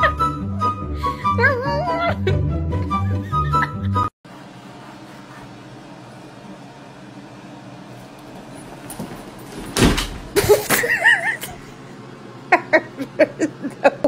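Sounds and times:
bag landing with heavy thump: 8.9 - 10.4
people laughing: 12.5 - 14.0.

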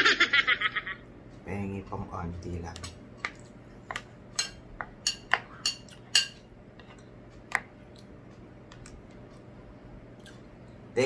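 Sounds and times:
spoons clinking on ceramic plates: 4.4 - 7.0.

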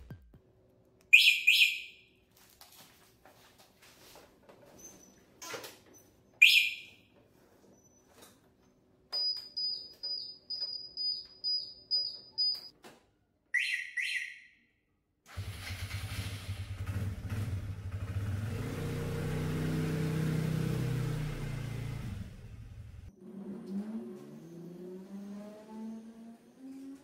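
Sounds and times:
motor scooter pulling away: 15.3 - 27.0.

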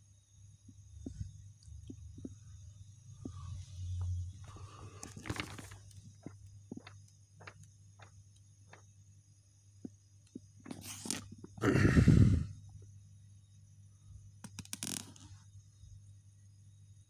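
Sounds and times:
low steady hum: 0.0 - 14.4
paper pages turning: 4.5 - 6.0, 10.7 - 11.2.

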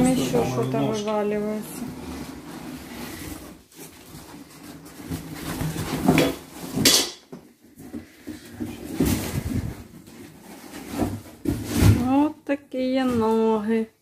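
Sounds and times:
metal clanks on tile floor: 0.0 - 1.5, 5.9 - 7.4
cardboard box rustling: 1.5 - 6.8, 7.5 - 12.1.

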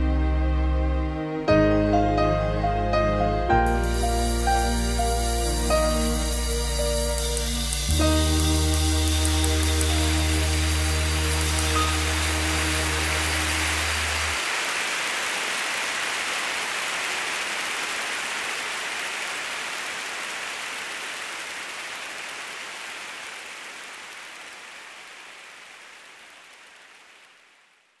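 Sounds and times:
live band holding chord: 0.0 - 14.4
congregation applauding: 8.0 - 27.9.

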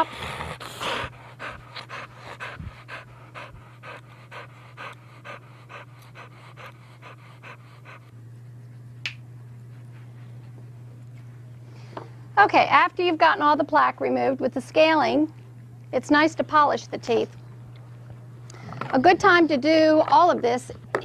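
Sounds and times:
dog panting rapidly: 0.0 - 8.2.

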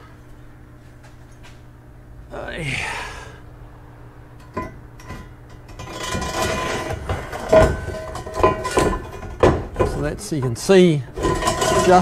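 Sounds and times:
metal scraping against metal: 4.4 - 12.0.

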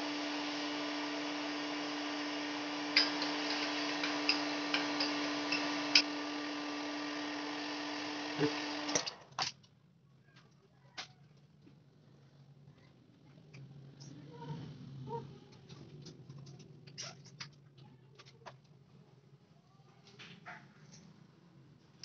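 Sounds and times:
heat gun hum and hiss: 0.0 - 9.2.

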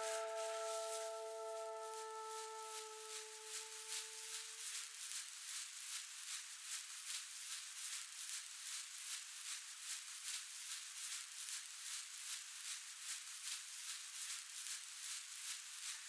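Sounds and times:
rhythmic pulsing hiss: 0.0 - 5.2.

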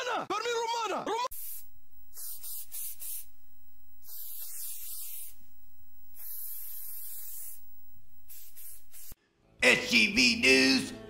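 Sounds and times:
pepper spray hissing: 1.3 - 9.2.

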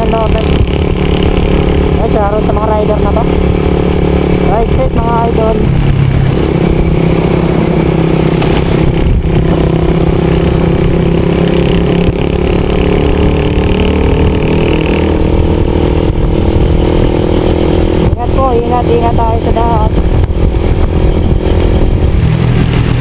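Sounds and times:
road noise: 0.0 - 23.0
vehicle engine droning: 0.0 - 23.0.

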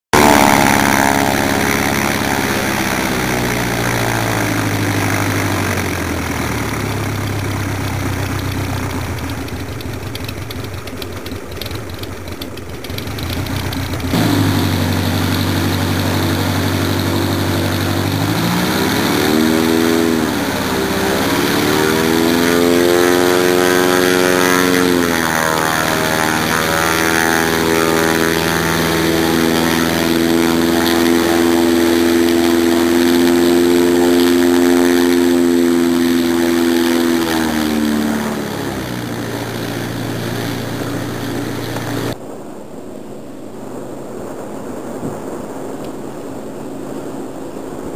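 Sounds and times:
propeller aircraft engine: 0.0 - 47.9.

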